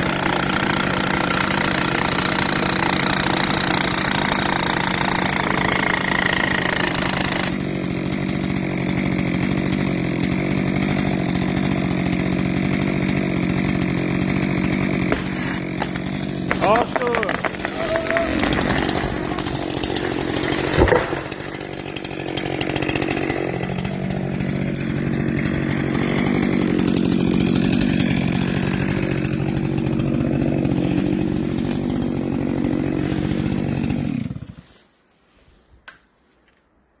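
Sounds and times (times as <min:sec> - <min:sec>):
chainsaw cutting: 0:00.0 - 0:35.0
tree falling with heavy thump: 0:14.6 - 0:34.5.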